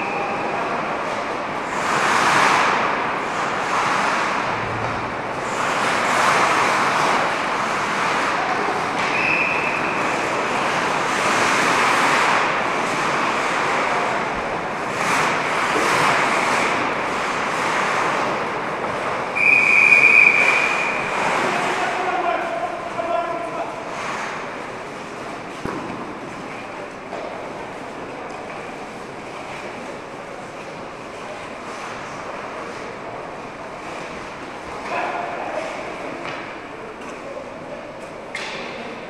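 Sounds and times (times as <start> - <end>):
skates scraping across ice: 0.1 - 37.2
whistle blowing: 9.1 - 9.9, 19.4 - 21.0.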